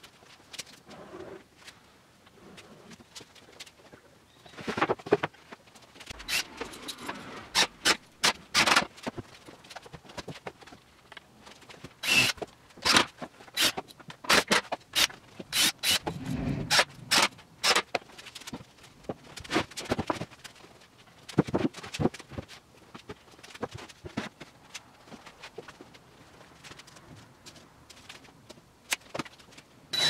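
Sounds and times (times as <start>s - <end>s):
wooden knocks and scrapes: 15.5s - 17.5s.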